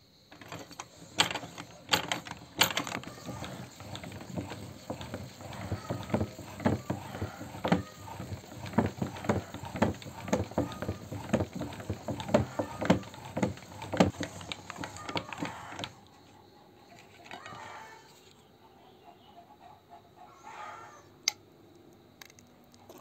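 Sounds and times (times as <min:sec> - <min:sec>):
meat grinder crank clicking: 0:00.3 - 0:16.0.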